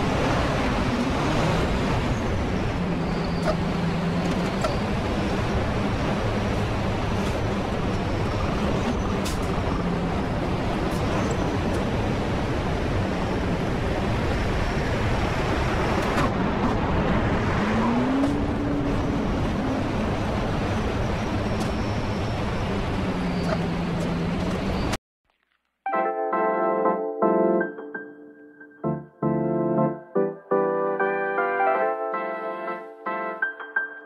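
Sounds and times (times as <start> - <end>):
road and traffic noise: 0.0 - 25.0.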